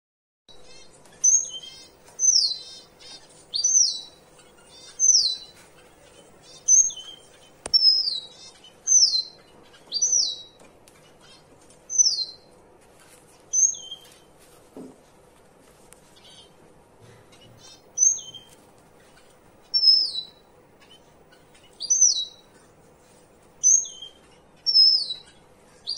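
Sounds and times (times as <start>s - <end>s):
finches calling: 0.6s - 12.5s, 17.3s - 22.8s, 23.6s - 25.9s.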